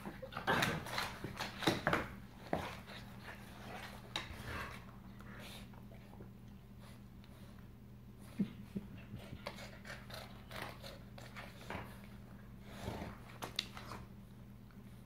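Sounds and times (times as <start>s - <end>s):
dogs scuffling on wooden floor: 0.0s - 4.9s.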